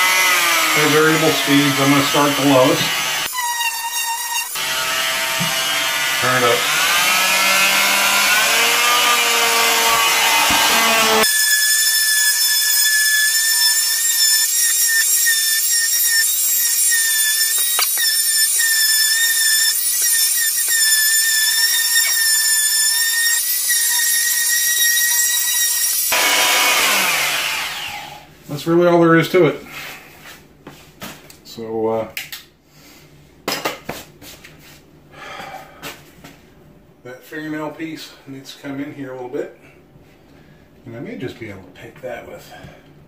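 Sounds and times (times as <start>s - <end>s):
oscillating multi-tool whining: 0.0s - 28.2s.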